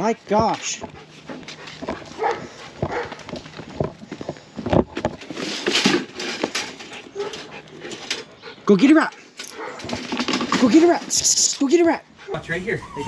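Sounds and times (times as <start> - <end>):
boots walking on stone: 0.2 - 5.3.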